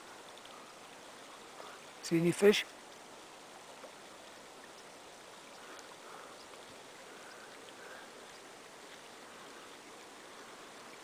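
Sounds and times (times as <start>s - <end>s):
faint lake water: 0.0s - 11.0s
tiny ticks: 0.2s - 0.8s, 5.5s - 9.1s.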